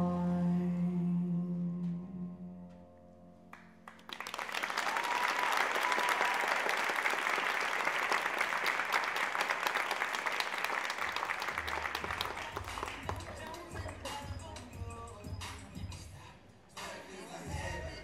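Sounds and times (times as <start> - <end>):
audience applause: 3.9 - 14.2.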